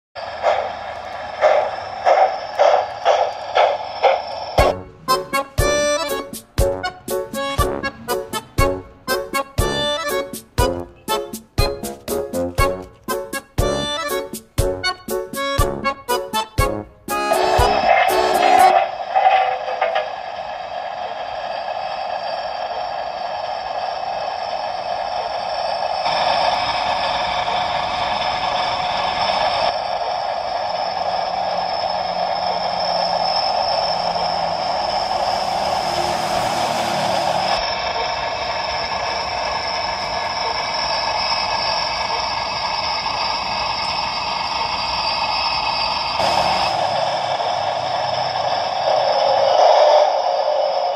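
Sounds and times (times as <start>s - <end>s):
model steam locomotive sounds: 0.2s - 50.9s
steam hiss: 17.1s - 50.9s.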